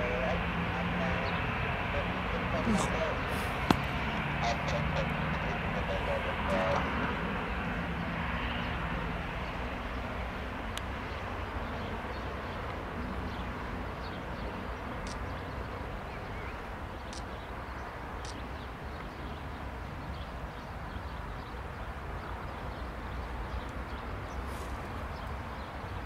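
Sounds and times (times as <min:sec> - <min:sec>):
jet engines rumbling: 0:00.0 - 0:09.9.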